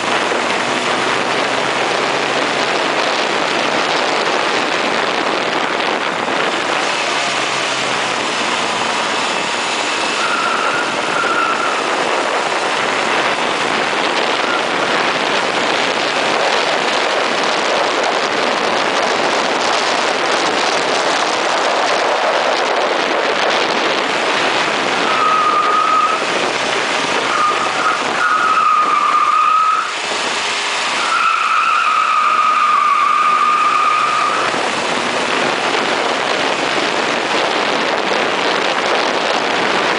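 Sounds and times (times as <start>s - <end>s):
wind and road noise: 0.0s - 39.9s
tyres squealing: 6.8s - 12.0s, 25.0s - 26.3s, 27.1s - 35.1s.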